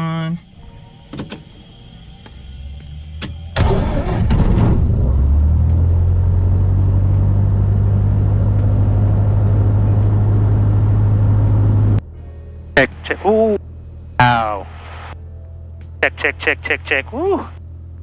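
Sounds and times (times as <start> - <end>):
aircraft engine starting and idling: 0.0 - 12.0.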